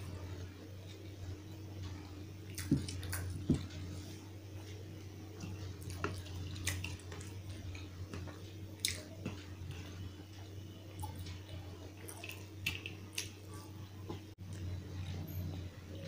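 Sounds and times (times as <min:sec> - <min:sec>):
steady low hum: 0:00.0 - 0:16.0
wet squishing of rice: 0:02.5 - 0:13.5.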